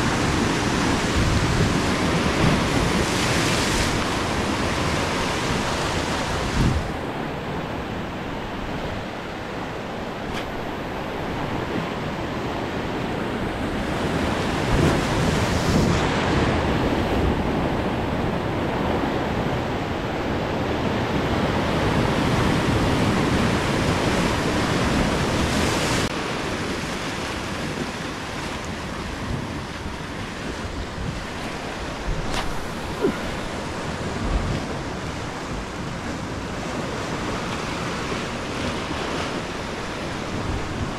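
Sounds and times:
surf breaking over rocks: 24.8s - 40.9s.

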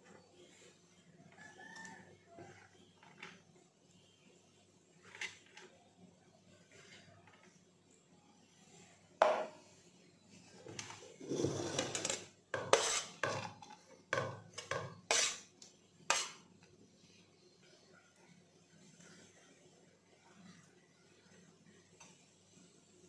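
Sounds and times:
metal spoon scraping a plate: 5.0s - 5.7s, 10.8s - 13.9s, 14.6s - 15.5s, 16.1s - 16.4s.

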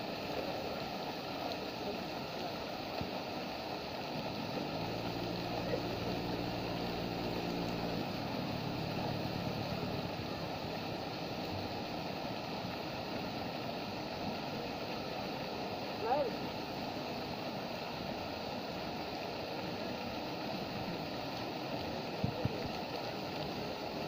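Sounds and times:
fountain water splashing: 0.0s - 24.0s
low motor hum: 3.9s - 13.1s.

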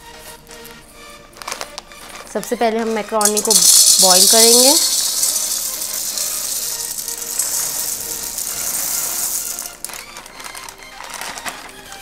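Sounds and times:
dry pasta rattling into pan: 3.2s - 11.7s.

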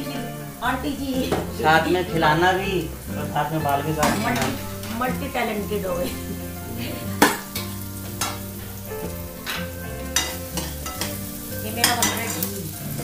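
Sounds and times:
frying sizzle: 0.0s - 13.0s
spatula scraping metal pan: 4.0s - 12.6s.

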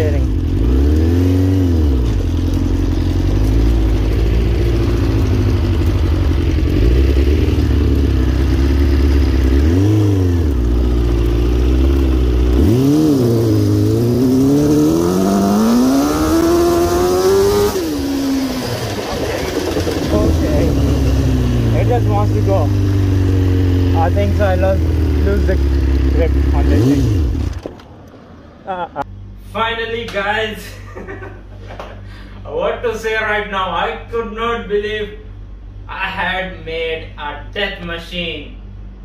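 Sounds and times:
motorcycle engine revving: 0.0s - 27.9s.

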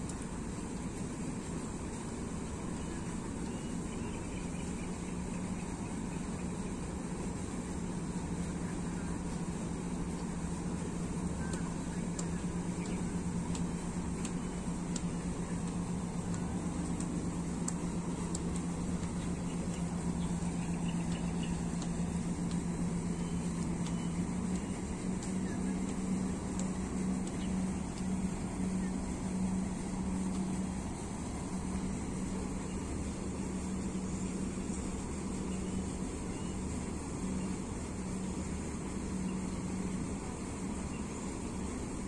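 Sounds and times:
faint high ticks: 0.0s - 42.0s
low machine hum: 0.0s - 42.0s
rush of background noise: 0.0s - 42.0s.

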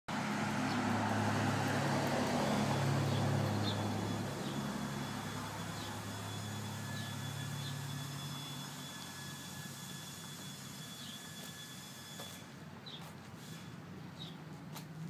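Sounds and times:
lawn mower engine idling: 0.1s - 11.5s.

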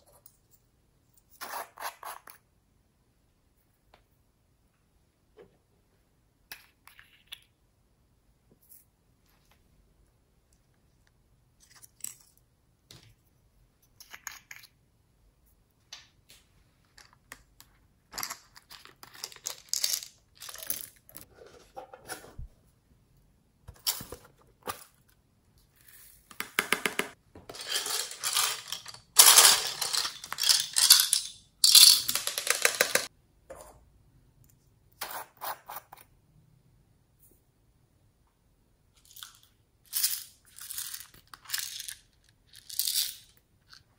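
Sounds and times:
beads rattling: 27.5s - 33.1s, 39.2s - 43.3s.

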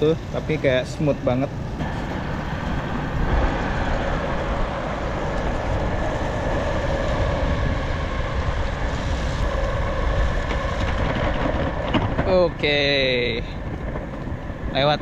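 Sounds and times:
skateboard wheels rumbling on asphalt: 0.0s - 15.0s.

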